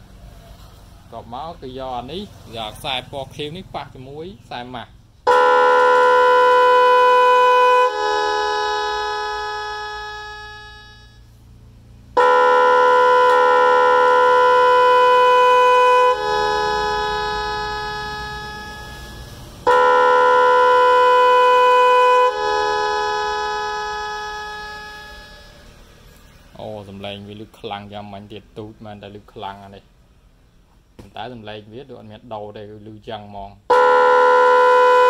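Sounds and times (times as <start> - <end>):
electronic motorcycle horn blaring: 5.2 - 26.6, 33.7 - 35.0.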